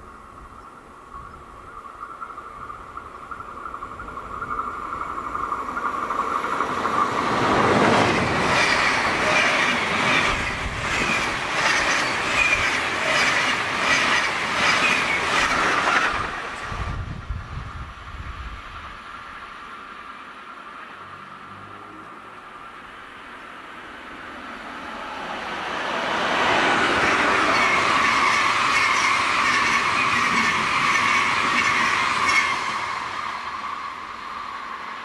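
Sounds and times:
passenger train passing: 0.0s - 35.0s
wheels beating over rails: 3.7s - 17.0s, 25.9s - 34.5s.

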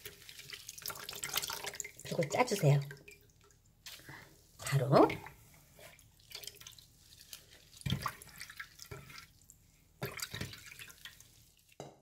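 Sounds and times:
water dripping into a glass bowl: 0.0s - 3.7s.

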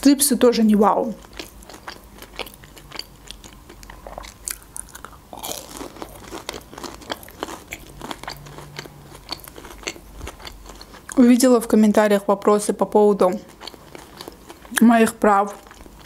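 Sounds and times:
crunchy chewing: 1.1s - 11.2s, 13.3s - 14.8s, 15.6s - 16.0s
wet mouth sounds: 1.4s - 11.2s.

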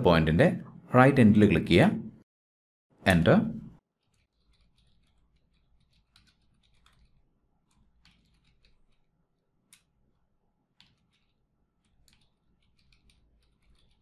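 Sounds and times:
faint keyboard typing: 4.0s - 10.0s, 10.6s - 14.0s.

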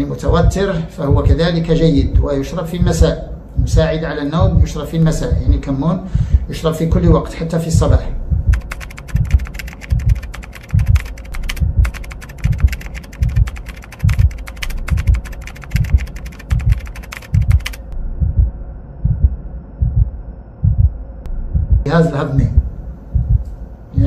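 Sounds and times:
low pulsing beat: 0.0s - 24.0s
keyboard key clicks: 8.5s - 17.9s.

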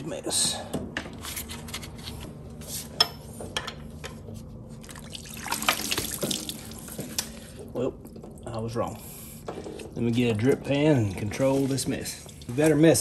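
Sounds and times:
coolant trickling and splattering: 4.8s - 8.8s.

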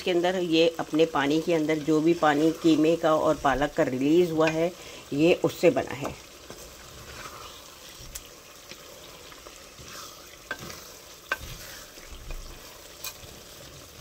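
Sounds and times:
faint sizzle of frying: 0.0s - 14.0s
wooden spoon scraping pot: 6.0s - 14.0s.

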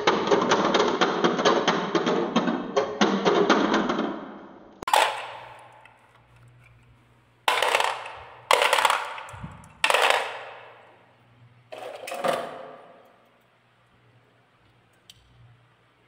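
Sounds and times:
marbles clattering into plastic truck: 4.9s - 5.9s, 7.5s - 11.0s, 11.7s - 13.0s.

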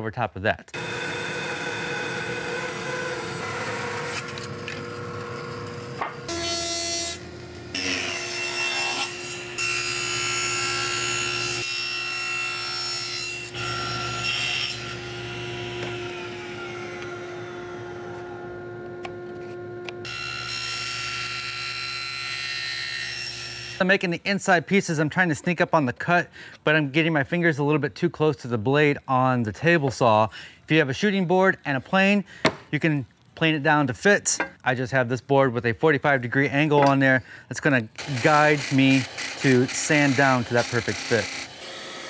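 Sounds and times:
bandsaw cutting wood: 0.8s - 23.8s, 38.0s - 42.0s
table saw cutting wood: 0.8s - 23.8s, 38.0s - 42.0s.

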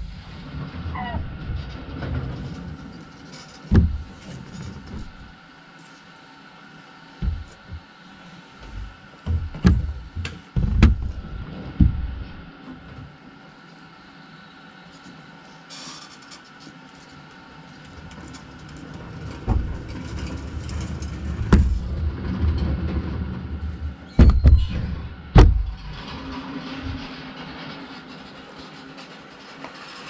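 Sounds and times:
load knocks and bangs: 0.0s - 2.8s, 3.6s - 5.4s, 7.2s - 7.9s, 8.6s - 12.5s, 19.4s - 23.1s, 24.2s - 26.1s
forklift engine: 0.0s - 5.6s, 7.0s - 12.6s.

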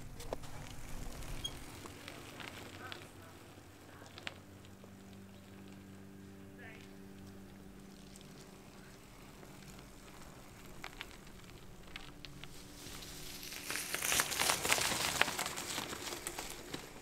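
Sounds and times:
faint low hum: 0.0s - 17.0s
dry leaves crunching and rustling: 8.0s - 17.0s.

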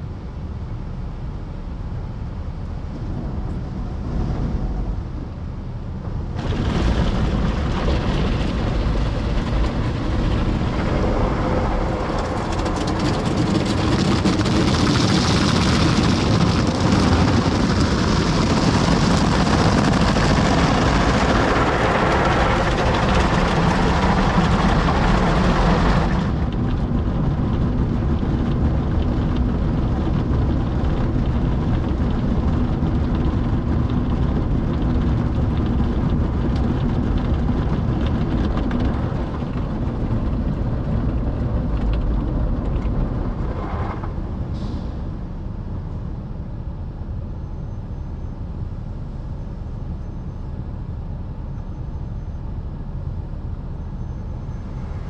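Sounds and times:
low steady rumble: 0.0s - 55.0s
water spraying on car roof: 6.4s - 35.0s.

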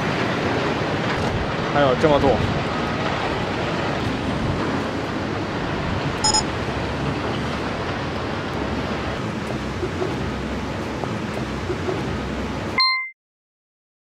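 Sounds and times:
wind noise on microphone: 0.0s - 12.6s
brief high tone: 6.2s - 6.5s, 12.8s - 13.2s.

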